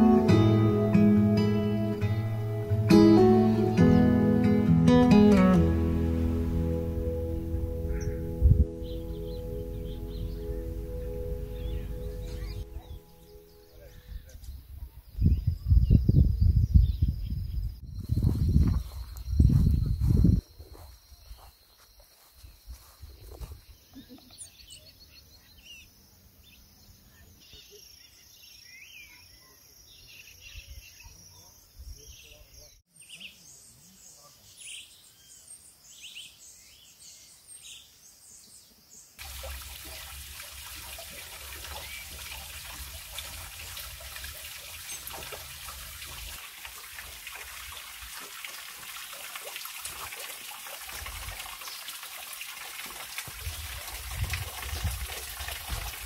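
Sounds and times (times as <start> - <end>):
birds chirping and calling: 7.3 - 17.1, 41.0 - 45.9
small waterfall splashing: 39.2 - 56.0.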